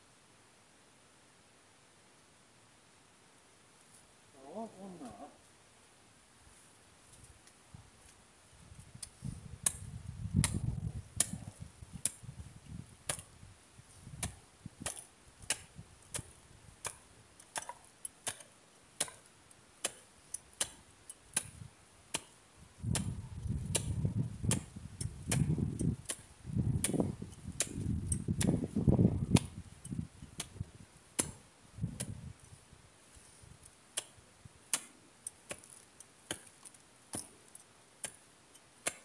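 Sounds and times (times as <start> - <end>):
hand tool tapping ground: 9.0 - 12.3, 13.1 - 13.3, 14.2 - 31.4, 32.0 - 39.0.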